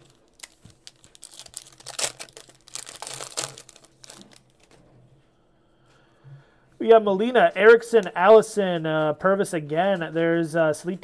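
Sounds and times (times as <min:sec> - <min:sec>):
foil wrapper tearing and crinkling: 0:00.0 - 0:04.7.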